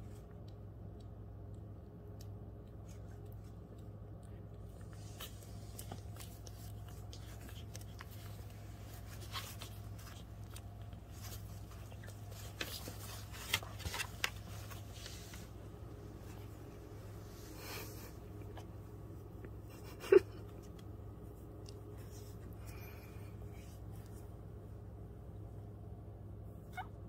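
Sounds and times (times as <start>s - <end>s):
low steady hum: 0.0s - 27.0s
soft rustling: 2.7s - 25.7s.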